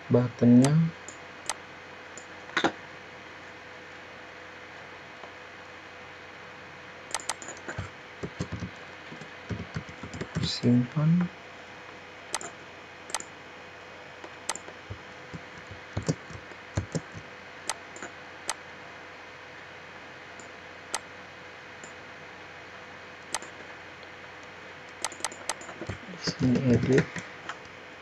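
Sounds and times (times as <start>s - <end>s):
steady faint hiss: 0.0s - 28.0s
mouse clicks and keystrokes: 7.1s - 10.5s, 12.3s - 13.3s, 14.2s - 18.6s, 23.3s - 23.6s, 24.9s - 26.0s.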